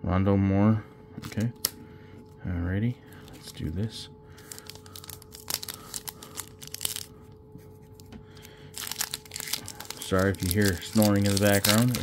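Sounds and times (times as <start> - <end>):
wrapper tearing and crinkling: 4.4 - 7.1, 8.4 - 12.0.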